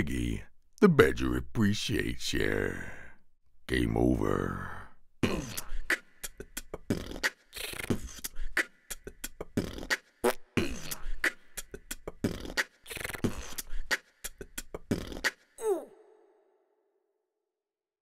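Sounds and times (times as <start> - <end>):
beatboxing: 5.2 - 15.6.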